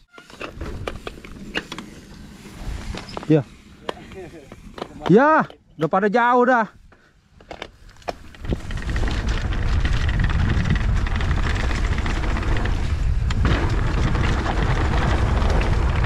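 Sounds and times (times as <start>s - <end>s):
bike tyres rolling on dirt: 0.0s - 5.5s, 7.7s - 16.0s
wind rushing over microphone: 8.4s - 16.0s.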